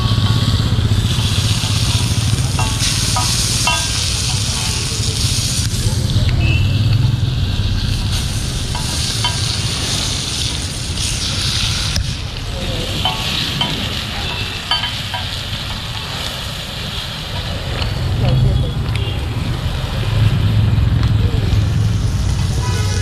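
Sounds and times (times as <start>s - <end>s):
fish sizzling in oil: 0.0s - 23.0s
metal spatula scraping a pan: 1.6s - 5.0s.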